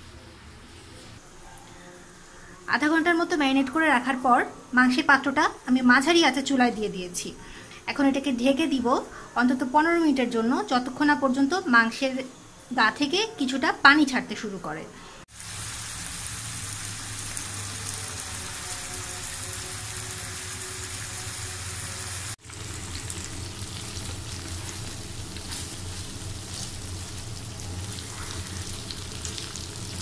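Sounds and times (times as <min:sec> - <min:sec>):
meat sizzling in a frying pan: 0:15.3 - 0:30.0.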